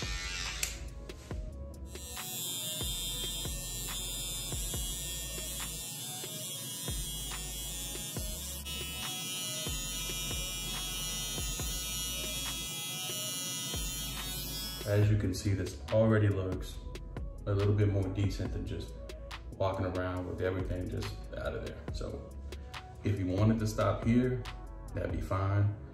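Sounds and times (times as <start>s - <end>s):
electric hair trimmer buzzing: 0.0s - 15.1s.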